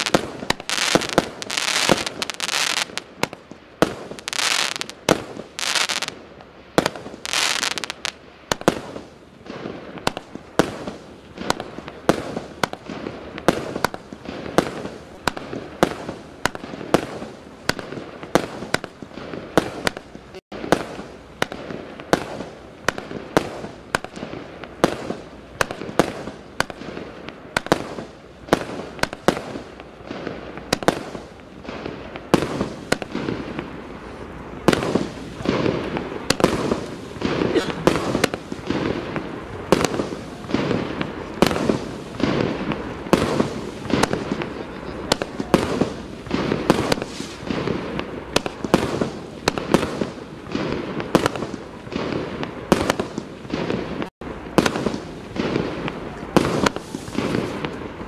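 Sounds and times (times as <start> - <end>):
firework bangs with crackling: 0.0 - 58.0.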